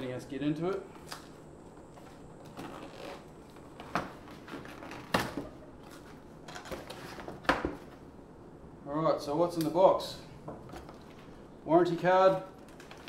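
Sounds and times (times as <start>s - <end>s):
cardboard and tape rustling: 1.0s - 8.1s, 12.3s - 13.0s.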